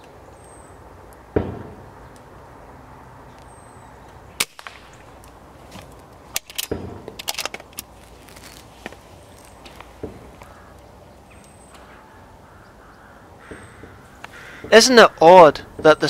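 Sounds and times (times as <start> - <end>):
dull thump: 1.3 - 1.8
air rifle shot: 4.4 - 5.1
clattering clicks and knocks: 5.7 - 7.9.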